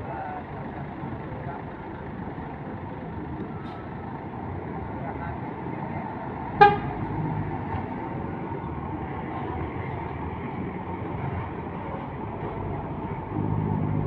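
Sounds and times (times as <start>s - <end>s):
bus diesel engine pulling away: 0.0s - 14.0s
traffic rumble: 0.0s - 14.0s
short horn toot: 6.6s - 7.0s.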